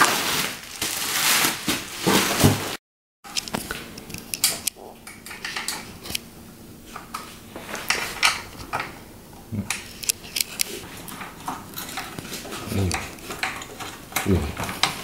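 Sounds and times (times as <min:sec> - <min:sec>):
plastic toy parts clicking and scraping: 0:09.7 - 0:15.0.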